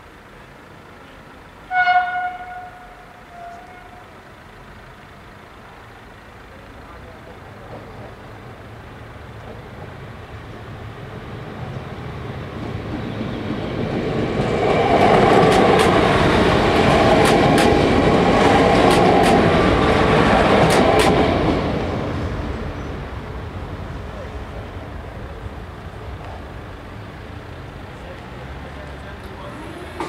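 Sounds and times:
train passing: 0.0s - 30.0s
wheel clicks over rail joints: 15.2s - 19.8s.

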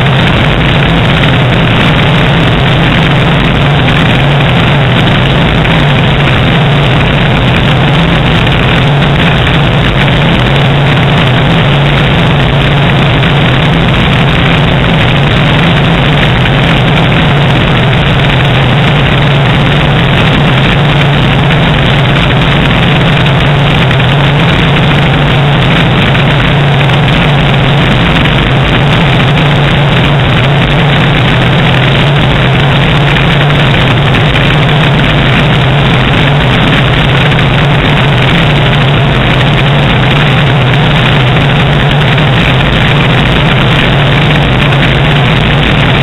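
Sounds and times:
rush of airflow: 0.0s - 46.0s.

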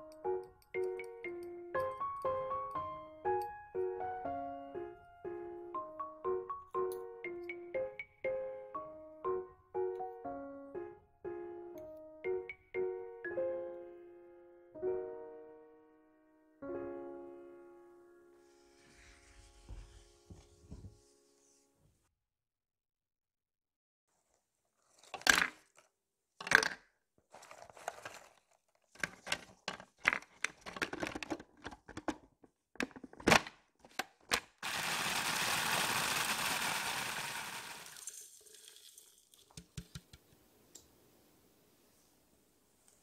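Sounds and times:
food processor grinding: 34.6s - 38.4s.

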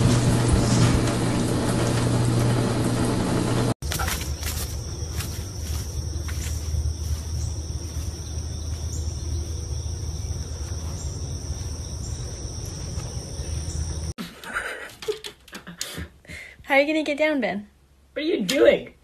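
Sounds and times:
insects chirping: 3.8s - 14.2s.

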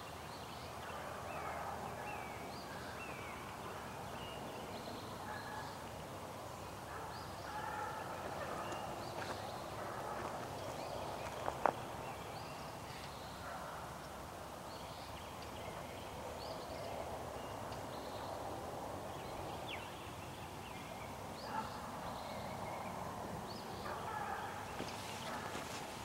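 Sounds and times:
distant hounds baying: 0.9s - 3.0s, 5.2s - 5.8s, 6.8s - 11.7s, 13.4s - 14.0s, 21.4s - 22.0s, 23.8s - 26.0s.

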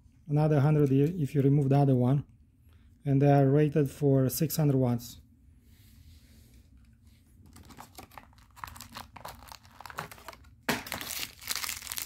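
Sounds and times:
plastic bag crinkling: 7.5s - 12.0s.

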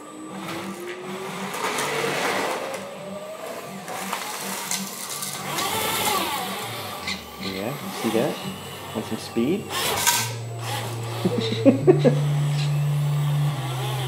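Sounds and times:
linear actuator whining: 0.0s - 14.0s
small electric motors whining: 0.0s - 14.0s
low pulsing hum: 2.8s - 14.0s.

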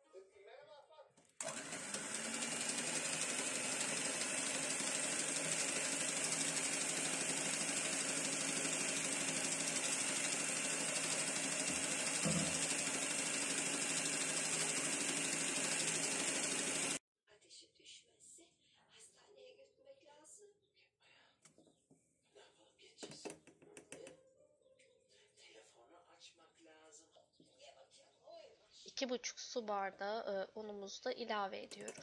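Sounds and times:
electric hand mixer whisking batter: 1.4s - 17.0s.

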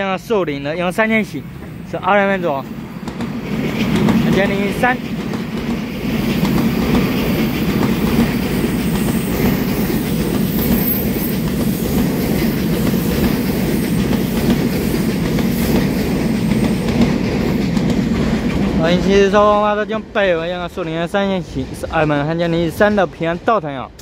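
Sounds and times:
train wheels on rails: 0.5s - 24.0s
wheels clattering over track: 3.0s - 19.1s.

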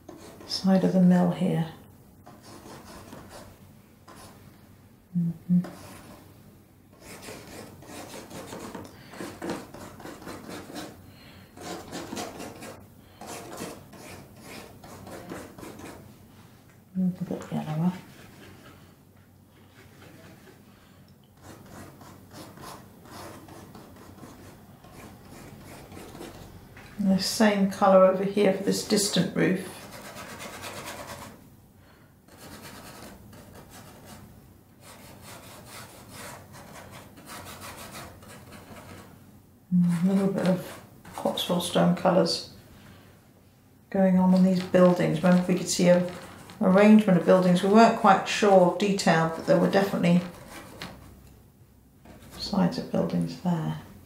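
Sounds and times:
paintbrush scrubbing on board: 7.0s - 11.0s, 11.6s - 16.0s, 17.6s - 18.9s, 21.4s - 26.5s, 28.8s - 31.4s, 39.8s - 41.8s, 44.6s - 51.2s
paintbrush scrubbing on canvas: 17.6s - 18.9s, 19.6s - 20.7s.

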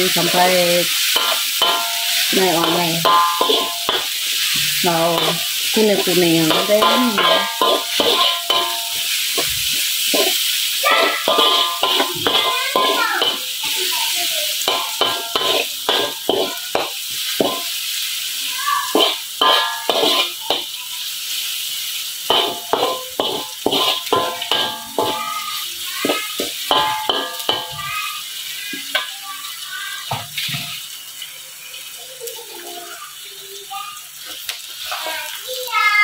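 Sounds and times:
food sizzling in oil: 0.0s - 36.0s
metal spatula scraping a wok: 0.1s - 13.7s, 14.6s - 17.8s, 19.0s - 20.7s, 22.3s - 27.8s.

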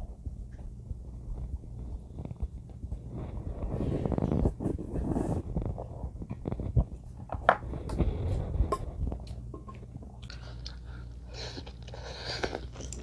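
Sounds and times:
person chewing: 9.2s - 13.0s.

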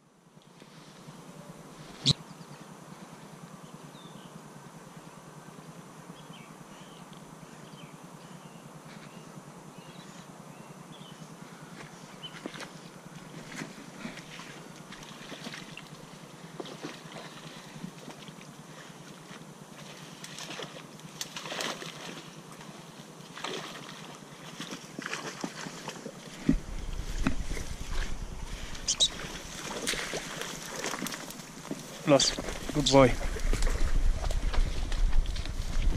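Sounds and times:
reed stems rustling and snapping: 19.8s - 35.9s.

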